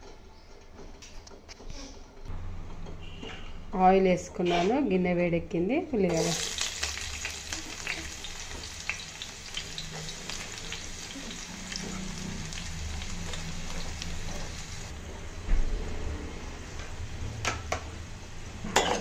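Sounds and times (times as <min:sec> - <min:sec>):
onions sizzling in hot oil: 0:06.1 - 0:14.9.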